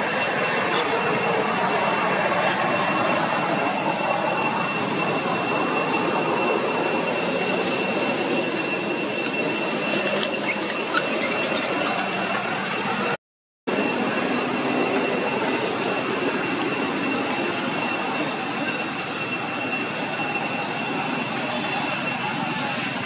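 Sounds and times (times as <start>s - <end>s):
high steady tones: 0.0s - 23.0s
loud outdoor drone: 0.0s - 23.0s.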